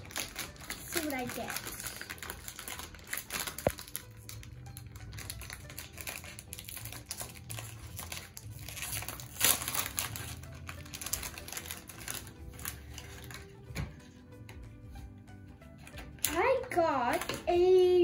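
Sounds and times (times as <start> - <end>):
foil packet crackling: 0.0 - 13.7.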